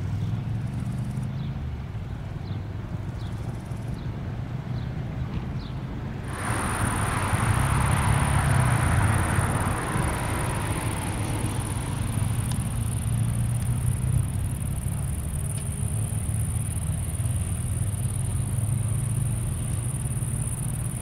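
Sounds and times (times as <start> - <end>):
high jet engine whine: 6.2 - 21.0
jet engines rumbling: 6.2 - 21.0.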